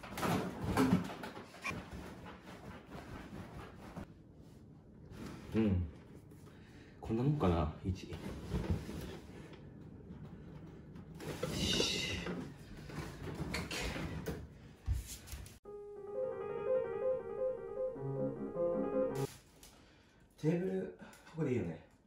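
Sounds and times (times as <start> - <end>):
instrumental music jingle: 15.7 - 19.3.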